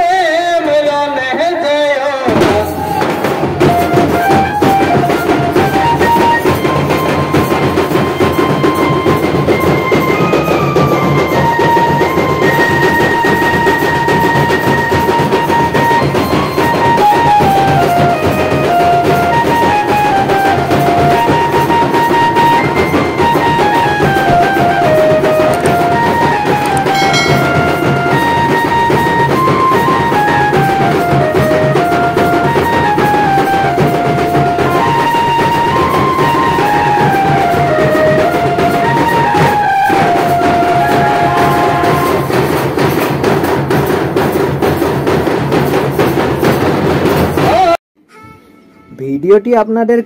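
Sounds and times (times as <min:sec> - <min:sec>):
drums beaten in fast rhythm: 0:02.2 - 0:47.8
melody of held notes: 0:14.7 - 0:42.3.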